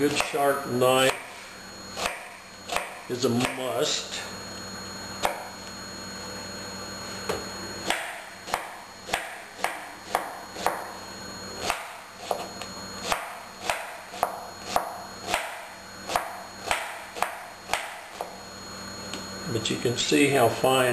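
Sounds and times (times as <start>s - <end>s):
knife chopping onion: 0.0s - 0.4s, 2.0s - 3.7s, 7.8s - 10.9s, 11.6s - 18.3s.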